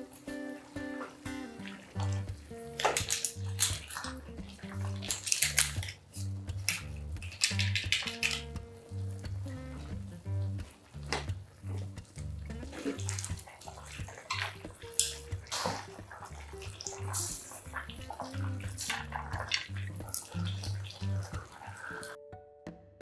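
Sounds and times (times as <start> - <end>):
background music with bass line: 0.0 - 23.0
chopsticks stirring noodles splashing: 0.1 - 22.2
pot of noodles boiling: 8.9 - 22.2.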